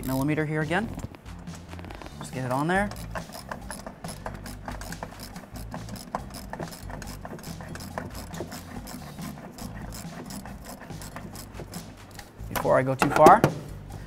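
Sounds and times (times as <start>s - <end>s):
hand ratchet clicking: 2.2s - 13.3s.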